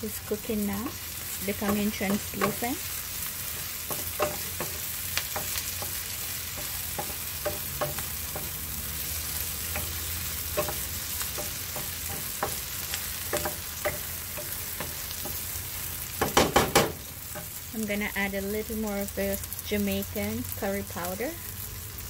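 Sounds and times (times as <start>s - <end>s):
onions sizzling in oil: 0.0s - 22.0s
wooden spoon tapping and scraping pan: 1.4s - 2.9s, 3.5s - 8.6s, 9.6s - 15.4s, 16.2s - 17.6s.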